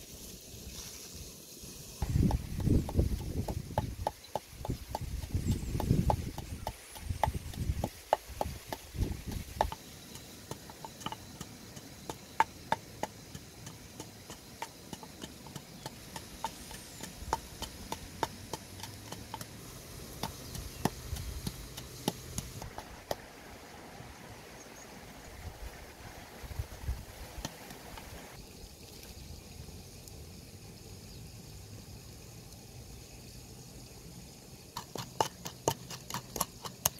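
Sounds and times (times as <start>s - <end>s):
pestle pounding in mortar: 2.0s - 23.2s, 34.8s - 36.9s.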